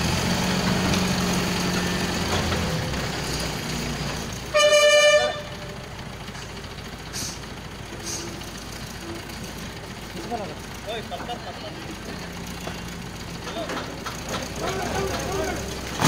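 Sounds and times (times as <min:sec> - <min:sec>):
heavy engine running: 0:00.0 - 0:16.0
vehicle horn: 0:04.5 - 0:05.8.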